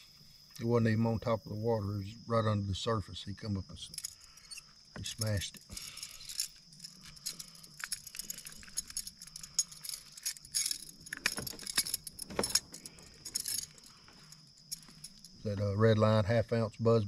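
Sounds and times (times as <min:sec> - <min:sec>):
metal lure clinking: 0:03.8 - 0:15.4.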